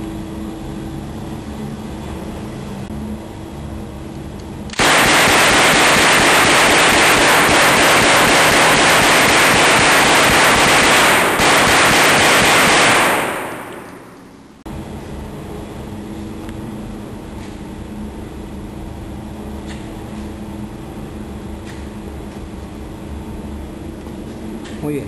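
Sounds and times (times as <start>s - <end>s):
rapid submachine gun fire: 4.7s - 14.2s.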